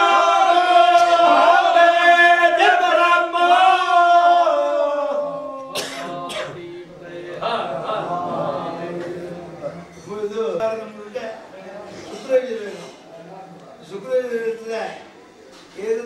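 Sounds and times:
men chanting: 0.0 - 9.7
quiet voices: 0.0 - 16.0.

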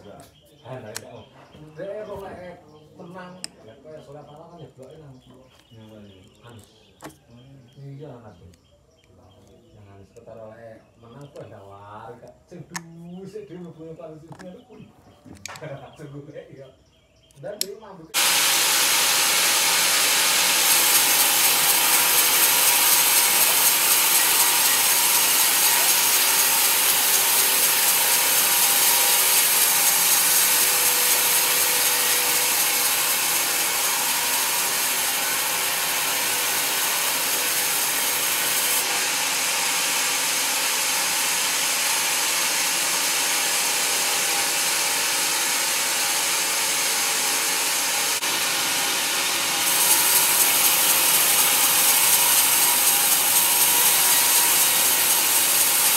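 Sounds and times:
band saw cutting through log: 18.2 - 55.9.

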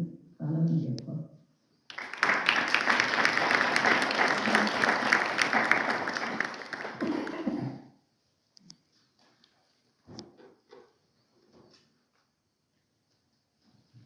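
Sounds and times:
audience applauding: 1.9 - 7.7.

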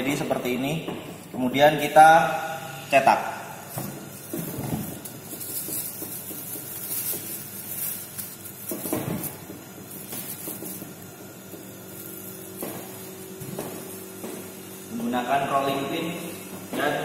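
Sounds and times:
plastic sheet crinkling: 3.6 - 14.2.

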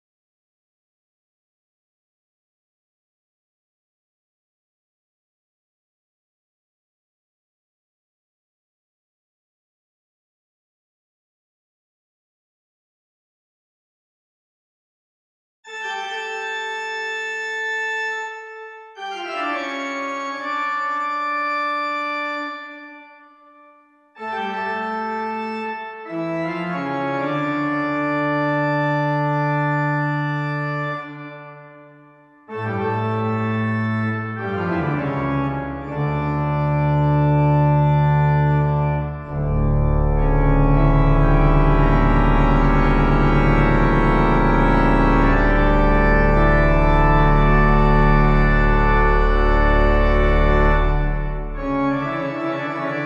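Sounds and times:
pipe organ chords: 15.7 - 53.0.

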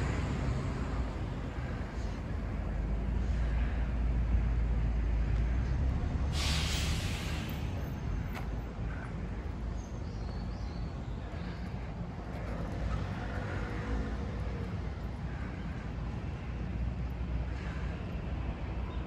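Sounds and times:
heavy vehicle rumble: 0.0 - 19.0
urban traffic: 0.0 - 19.0
sharp hiss: 6.3 - 7.8.

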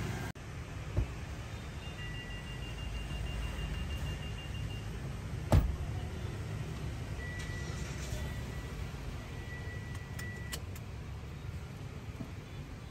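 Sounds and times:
vehicle rumbling: 0.0 - 12.9
sharp thump: 5.5 - 5.8.

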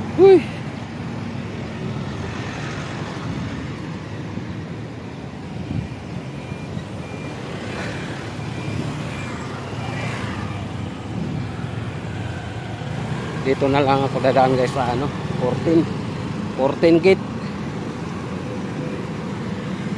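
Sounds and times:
traffic engine rumble: 0.0 - 19.9
faint high beep: 5.6 - 12.7.

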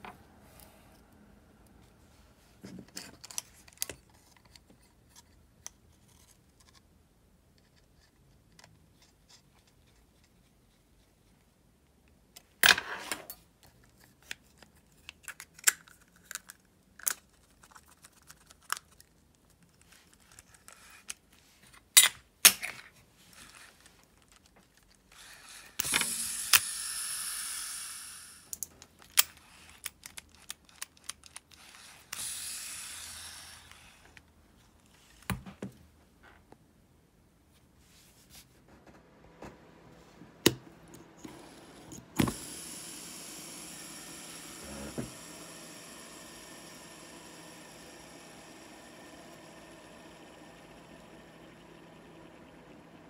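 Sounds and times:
fishing reel spinning whir: 25.4 - 28.5, 32.2 - 34.0, 42.2 - 53.0.

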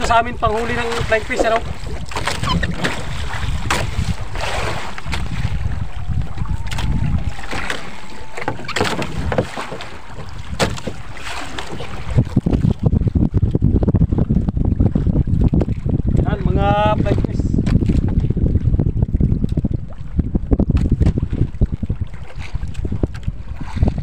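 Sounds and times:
water sloshing around boat: 0.0 - 24.0
wind buffeting microphone: 0.0 - 24.0
sharp knocks against hull: 1.0 - 4.2, 6.7 - 11.9.

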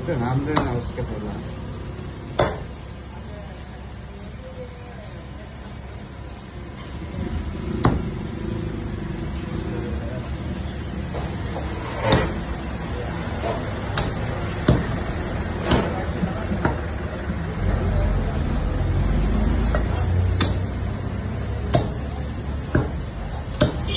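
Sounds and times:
blade chopping chicken: 13.5 - 16.9, 19.7 - 20.8, 21.6 - 23.9.

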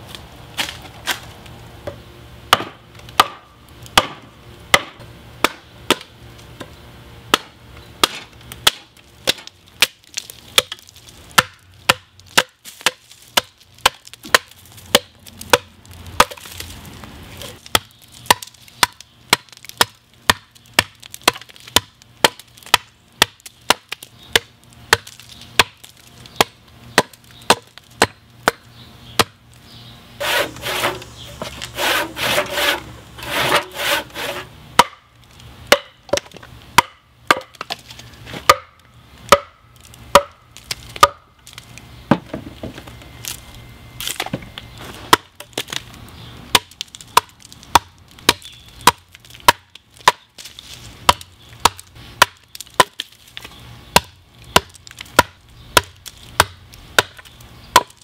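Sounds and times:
hatchet chopping a log: 2.5 - 6.1, 7.3 - 10.0, 10.6 - 16.5, 17.6 - 28.6, 29.2 - 29.4, 30.2 - 35.1, 35.7 - 37.8, 38.4 - 40.4, 41.0 - 41.3, 45.1 - 45.6, 46.5 - 53.1, 53.9 - 58.0.

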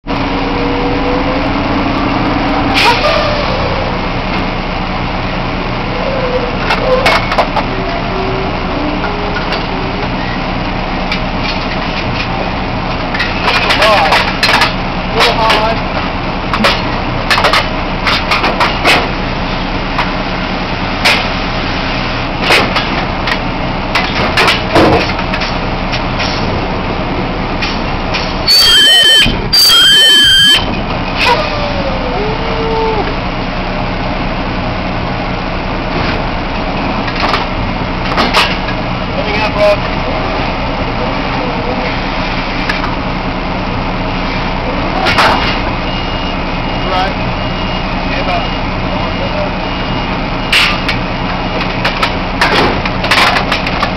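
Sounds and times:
high-pitched squeal: 0.1 - 4.3, 27.7 - 33.2
drilling rig machinery running: 0.1 - 53.9
drill pipe clanking and banging: 6.6 - 8.1, 9.0 - 19.3, 22.4 - 26.7, 35.9 - 40.0, 49.8 - 53.9.

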